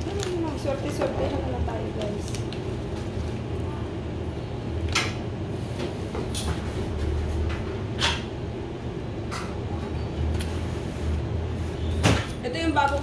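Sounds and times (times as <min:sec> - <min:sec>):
steady low hum: 0:00.0 - 0:13.0
eating clicks and cracks: 0:01.9 - 0:03.5.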